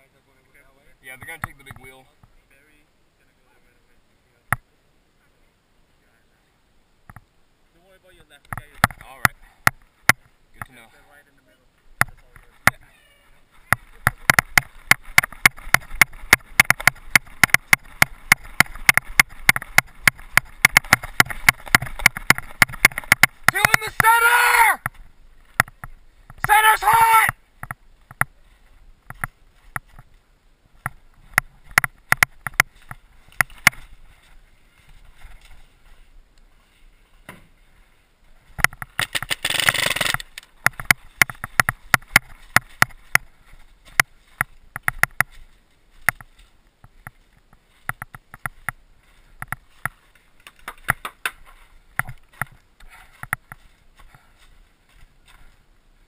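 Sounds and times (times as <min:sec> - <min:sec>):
paintball markers firing: 0:14.1 - 0:24.1, 0:39.0 - 0:42.9.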